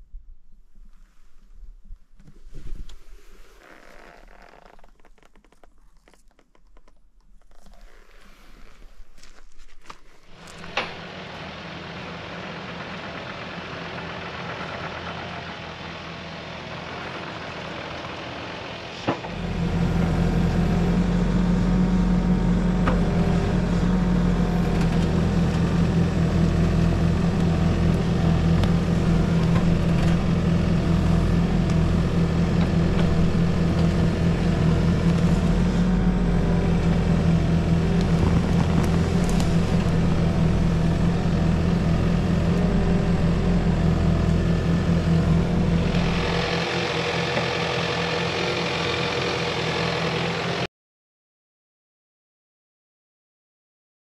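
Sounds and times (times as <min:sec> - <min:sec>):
engine running: 0:10.2 - 0:50.7.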